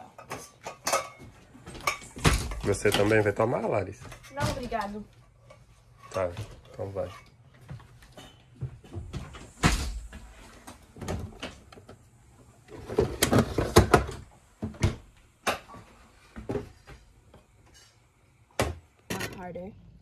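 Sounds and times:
kitchen knocks and clatter: 0:00.0 - 0:12.0, 0:12.7 - 0:19.5.

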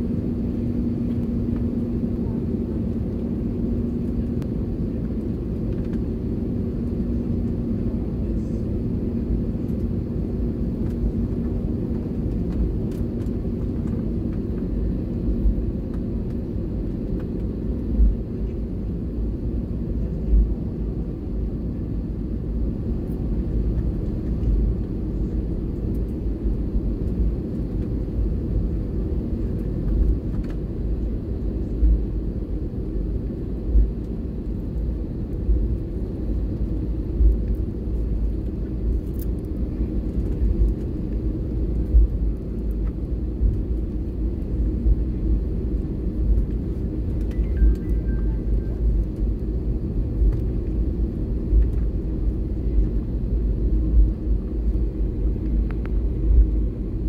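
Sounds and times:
humming tone: 0:47.2 - 0:49.0.

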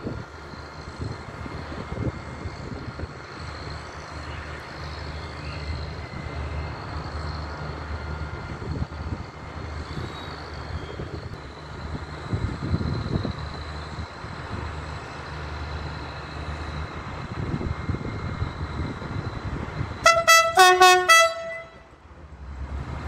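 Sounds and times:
diesel engine humming: 0:00.0 - 0:23.0.

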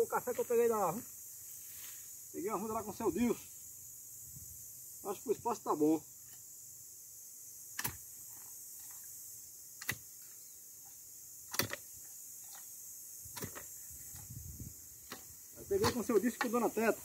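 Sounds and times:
post-hole digger striking soil: 0:07.7 - 0:08.1, 0:09.8 - 0:10.2, 0:11.4 - 0:12.7, 0:13.3 - 0:14.4, 0:15.0 - 0:16.7.

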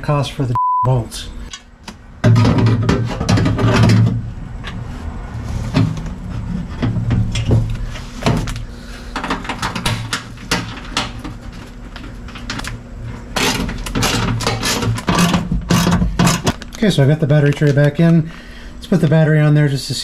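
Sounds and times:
tools clattering on sheet metal: 0:02.2 - 0:04.2, 0:09.2 - 0:11.4, 0:13.4 - 0:16.6.

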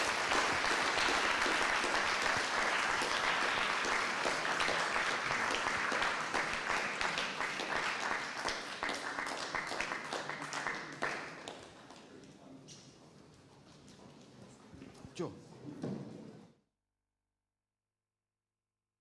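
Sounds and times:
audience applauding: 0:00.0 - 0:12.1.

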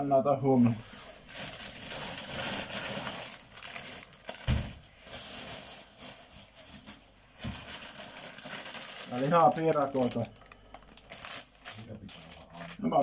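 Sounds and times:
bag and packaging rustling: 0:01.2 - 0:13.0
thump: 0:04.4 - 0:04.8.

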